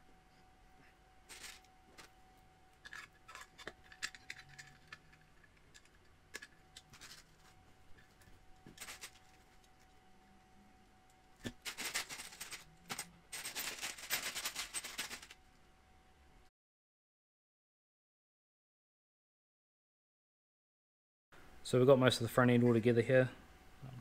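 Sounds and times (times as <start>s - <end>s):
plastic bag crinkling and rattling: 1.3s - 2.1s, 2.9s - 9.9s, 11.5s - 15.4s
small parts clicking and tapping: 2.8s - 10.0s.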